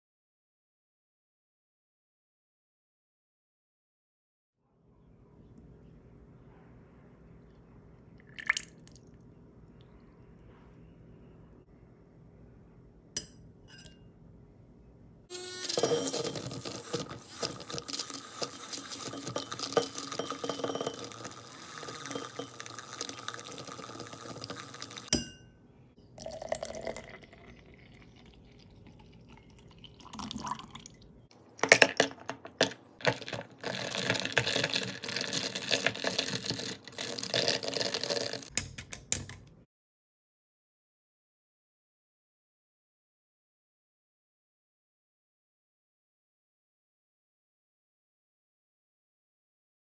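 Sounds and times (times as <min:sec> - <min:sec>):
milk being poured: 0:08.2 - 0:09.2, 0:15.6 - 0:25.1, 0:26.2 - 0:31.0, 0:33.0 - 0:38.5
clinks against glass: 0:13.2 - 0:14.1, 0:19.0 - 0:22.8, 0:25.1 - 0:25.5
milk frother whirring in glass: 0:15.3 - 0:25.1, 0:33.1 - 0:38.5.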